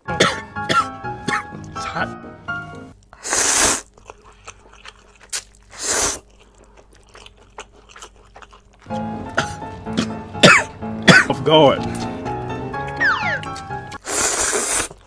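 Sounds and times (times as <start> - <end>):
loud noodle slurps: 3.2 - 3.9, 5.7 - 6.2, 13.9 - 15.0
wet chewing clicks: 3.8 - 9.1.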